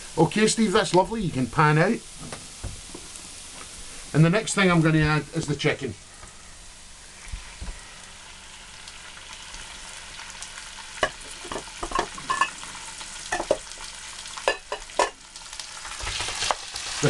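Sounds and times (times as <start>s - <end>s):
chicken sizzling in hot oil: 0.0s - 17.0s.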